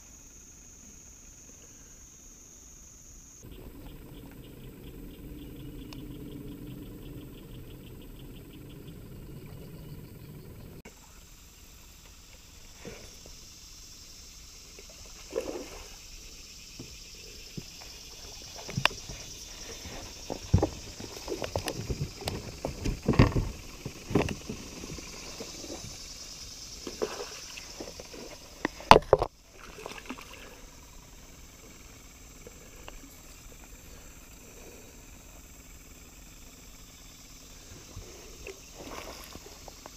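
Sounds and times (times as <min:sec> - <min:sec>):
steady high hiss: 0:00.0 - 0:39.9
gear knocking on plastic kayak hull: 0:20.2 - 0:25.6.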